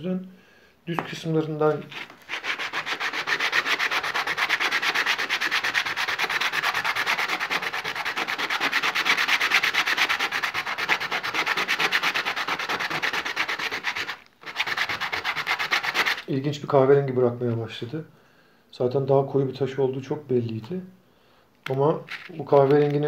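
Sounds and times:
stone scraping on wet abrasive paper: 0:01.8 - 0:16.3.

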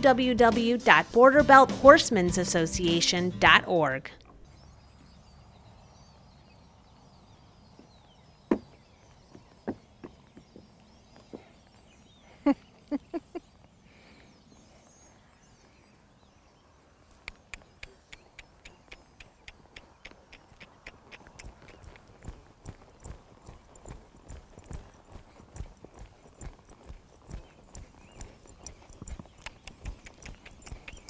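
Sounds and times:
hooves on wooden platform: 0:07.7 - 0:11.9, 0:17.6 - 0:31.0
donkey hoofbeats: 0:07.7 - 0:13.7, 0:17.2 - 0:31.0.

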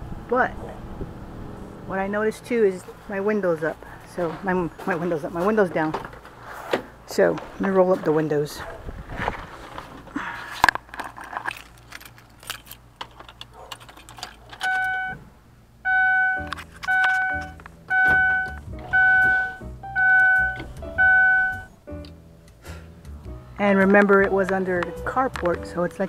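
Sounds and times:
keys jangling: 0:11.4 - 0:14.9
car warning chime: 0:14.7 - 0:15.2, 0:15.8 - 0:21.8.

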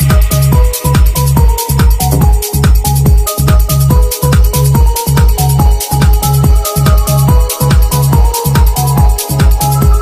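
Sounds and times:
electronic dance music: 0:00.0 - 0:10.0.

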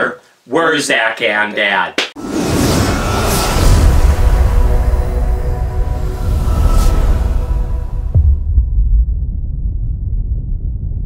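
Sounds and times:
low rumble: 0:02.2 - 0:11.0
deep bass boom: 0:02.9 - 0:11.0.

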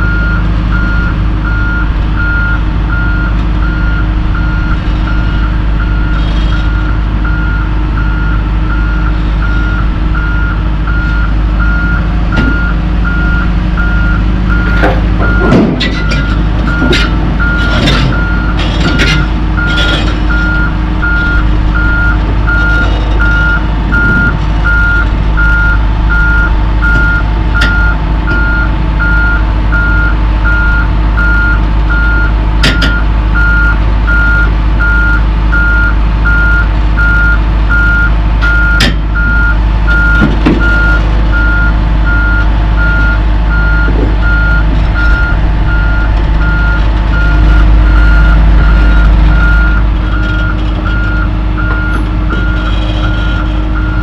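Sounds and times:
backup alarm beeping: 0:00.0 - 0:54.0
diesel engine running: 0:00.0 - 0:54.0.

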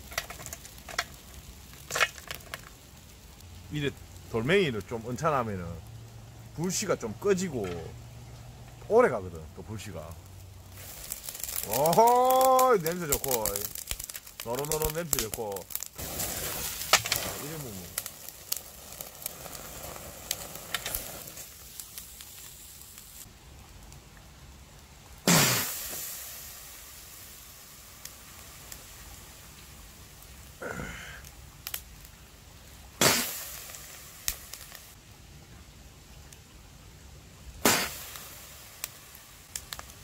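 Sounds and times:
charcoal fire crackling: 0:00.0 - 0:40.0
loud bursts of hiss: 0:16.0 - 0:18.0, 0:25.2 - 0:27.8, 0:33.0 - 0:35.0, 0:37.6 - 0:39.3.

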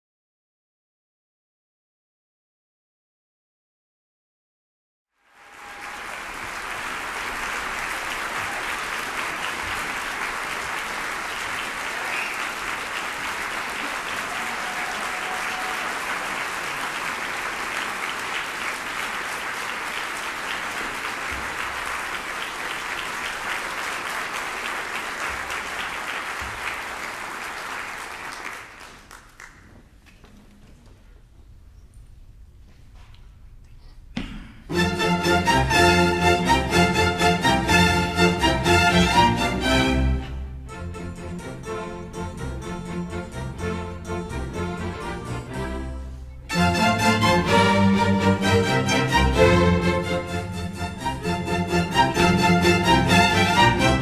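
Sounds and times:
audience applauding: 0:05.2 - 0:30.2
faint stage noise: 0:05.2 - 0:34.9.

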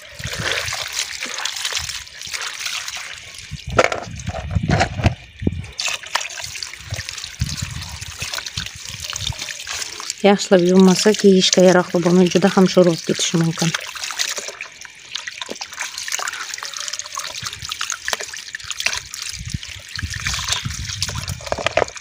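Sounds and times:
hands sloshing cabbage leaves: 0:00.0 - 0:04.9, 0:05.6 - 0:22.0
tap water running and splashing: 0:00.0 - 0:22.0.

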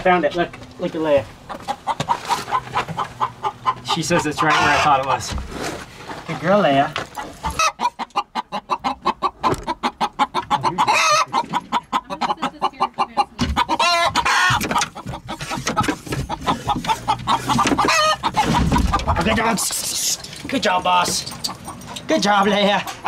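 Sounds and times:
chickens clucking: 0:00.0 - 0:23.0
chicken squawk: 0:01.6 - 0:05.2, 0:07.2 - 0:20.2.

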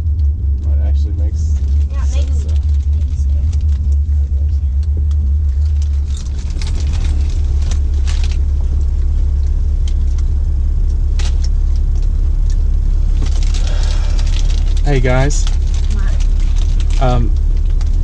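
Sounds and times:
car cabin rumble: 0:00.0 - 0:18.0
plastic chip bags crinkling: 0:05.6 - 0:10.3, 0:13.1 - 0:18.0.

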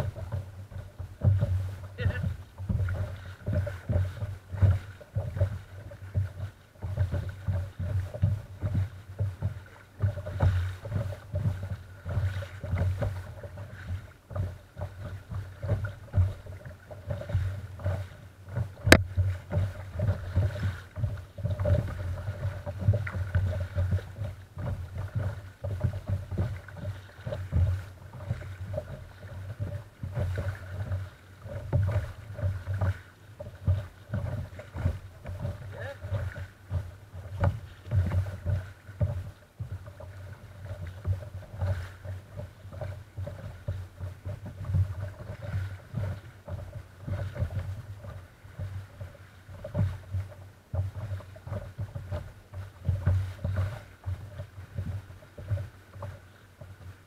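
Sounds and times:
water lapping against kayak hull: 0:00.0 - 0:57.0.

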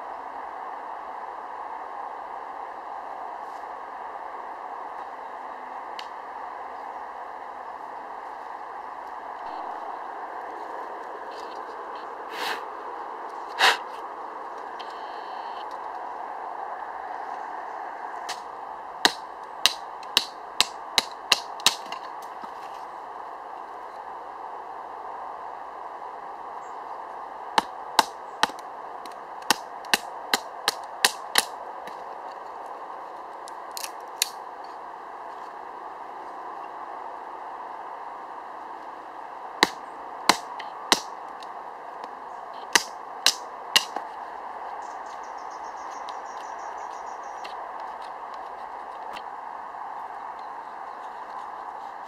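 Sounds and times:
knife splitting wooden stick: 0:39.6 - 0:41.1, 0:42.6 - 0:44.0.

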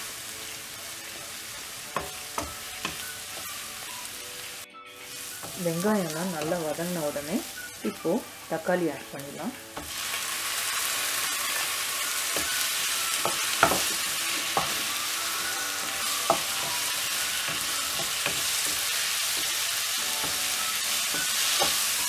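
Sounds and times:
onions and tomato sizzling in oil: 0:00.0 - 0:22.0
spatula knocking and scraping pan: 0:13.2 - 0:14.9, 0:16.2 - 0:21.9.

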